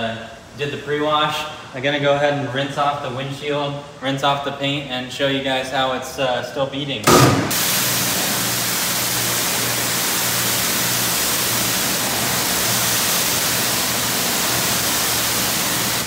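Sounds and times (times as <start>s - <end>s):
pressure washer spraying water: 7.1s - 16.0s.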